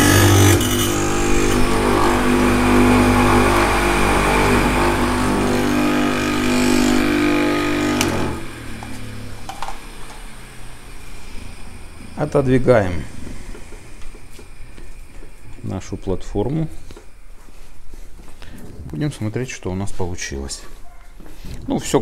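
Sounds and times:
knife grinding against wheel: 0:00.0 - 0:08.4
motor winding down: 0:00.0 - 0:16.5
electric motor humming: 0:00.0 - 0:16.6.

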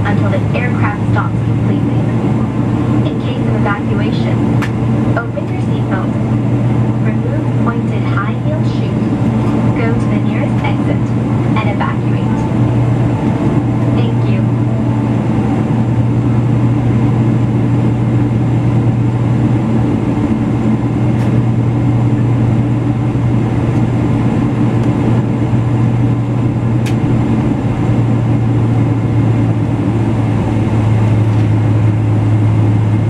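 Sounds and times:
jet engines low drone: 0:00.0 - 0:33.0.

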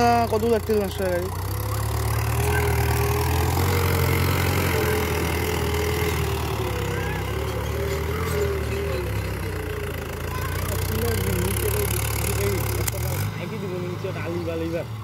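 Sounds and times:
tractor diesel engine under load: 0:00.0 - 0:15.0.

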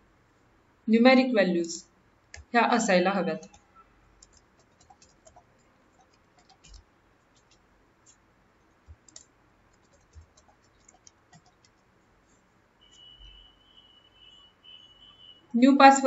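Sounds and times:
keyboard typing clicks: 0:03.4 - 0:08.2, 0:08.8 - 0:11.8.

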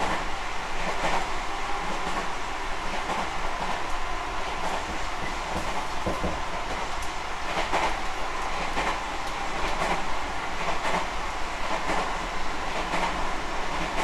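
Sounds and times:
electric train running: 0:01.8 - 0:10.0
wheels clacking on rail joints: 0:04.6 - 0:08.0.

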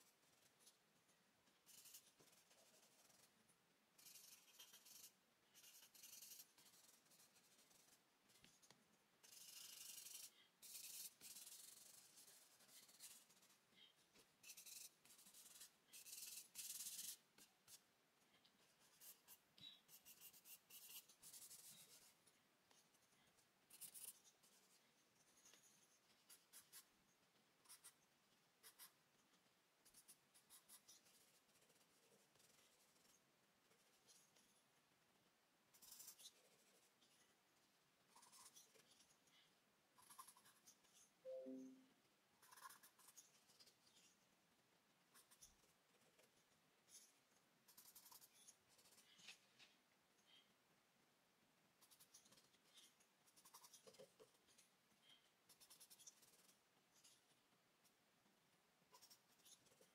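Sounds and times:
charcoal scratching on paper: 0:01.6 - 0:03.4, 0:04.0 - 0:13.6, 0:14.4 - 0:17.8, 0:18.7 - 0:26.9, 0:28.6 - 0:29.0, 0:29.8 - 0:34.6, 0:35.7 - 0:37.3, 0:38.1 - 0:41.2, 0:42.4 - 0:44.2, 0:45.1 - 0:49.4.

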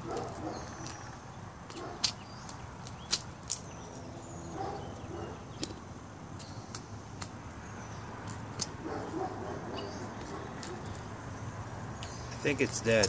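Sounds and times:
beak tapping on concrete: 0:00.1 - 0:01.1, 0:01.7 - 0:03.8, 0:06.4 - 0:07.4.

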